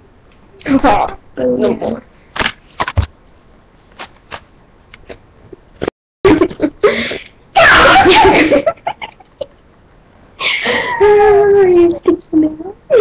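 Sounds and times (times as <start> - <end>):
girl wailing: 7.6 - 8.4, 10.4 - 11.6.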